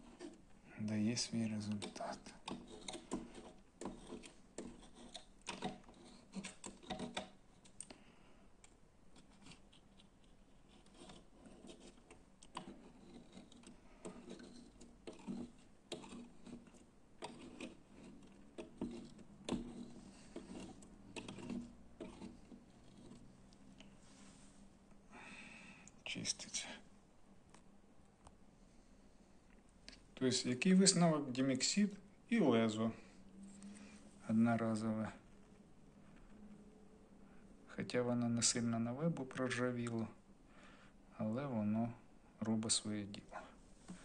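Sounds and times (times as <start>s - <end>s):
razor blade scraping glass: 1.4s - 7.4s, 10.7s - 23.3s.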